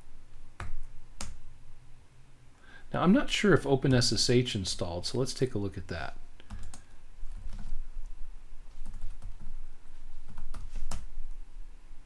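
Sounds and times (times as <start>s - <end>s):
typing on computer keyboard: 6.5s - 7.7s.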